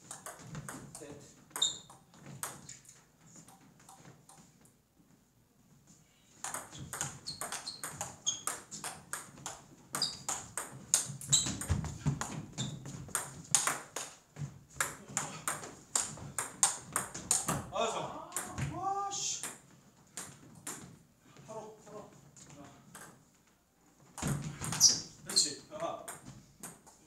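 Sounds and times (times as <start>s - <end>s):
table tennis ball clicking off bats: 6.4s - 9.6s.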